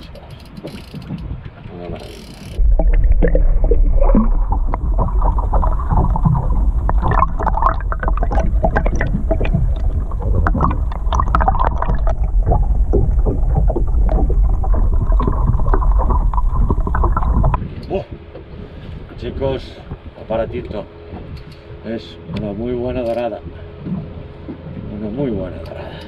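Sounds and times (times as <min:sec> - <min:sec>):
small underwater clicks and pops: 0:00.0 - 0:17.9, 0:21.2 - 0:21.7
underwater moving water rumble: 0:00.0 - 0:25.6.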